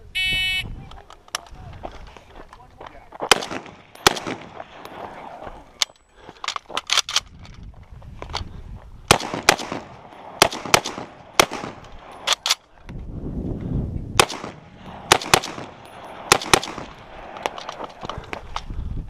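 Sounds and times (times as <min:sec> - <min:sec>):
rifle shots: 0:03.3 - 0:04.8, 0:09.1 - 0:12.6, 0:14.2 - 0:18.0.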